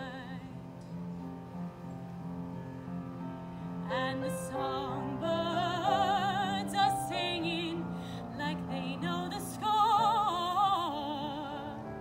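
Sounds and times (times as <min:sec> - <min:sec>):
woman singing operatically: 0:03.9 - 0:12.0.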